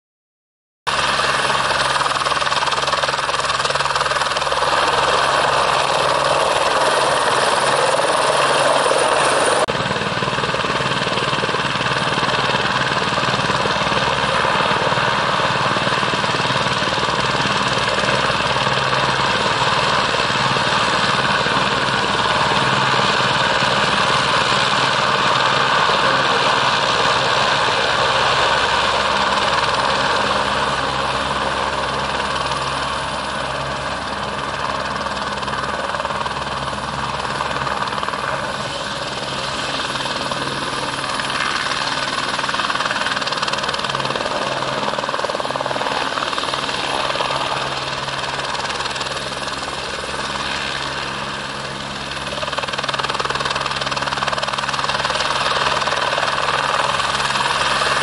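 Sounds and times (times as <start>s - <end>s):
helicopter turbine and rotor: 0.9s - 58.0s.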